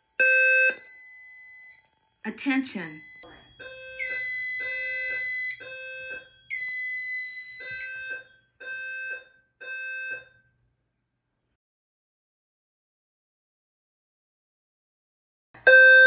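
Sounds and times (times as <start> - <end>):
fire alarm buzzing pulses: 0.0 - 10.6, 15.6 - 16.0.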